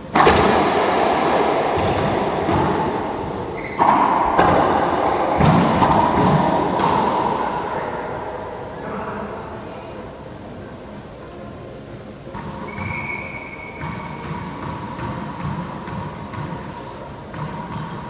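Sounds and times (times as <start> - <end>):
ball smacking racquets and walls: 0.0 - 8.1, 12.3 - 18.0.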